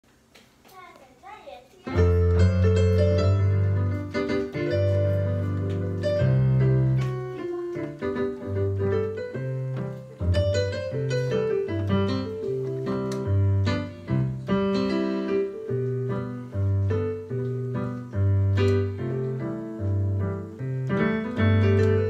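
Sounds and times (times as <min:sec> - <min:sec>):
electronic keyboard piano playing: 0:01.9 - 0:22.0.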